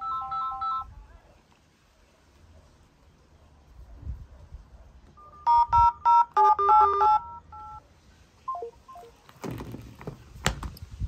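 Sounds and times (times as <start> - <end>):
dial-pad keypad tones: 0.0 - 0.9, 5.2 - 7.8, 8.5 - 9.2.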